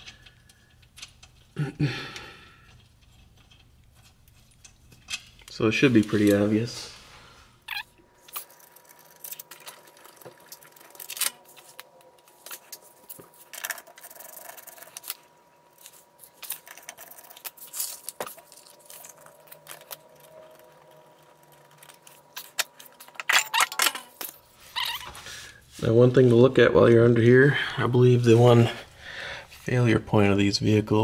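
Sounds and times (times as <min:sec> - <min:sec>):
metal tools and bolts clinking: 0:23.1 - 0:24.3.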